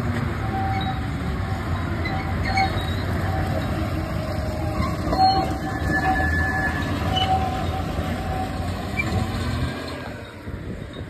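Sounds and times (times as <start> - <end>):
diesel locomotive engine under load: 0.0 - 11.0
wheels rumbling on rails: 0.0 - 11.0.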